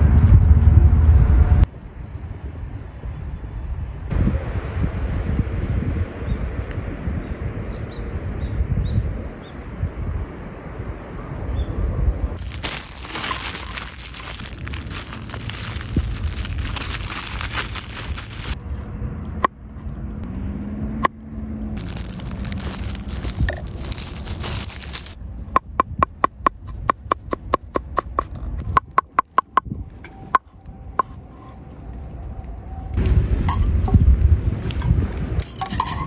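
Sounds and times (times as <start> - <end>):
plastic bag crinkling: 12.4 - 18.6, 21.8 - 25.2.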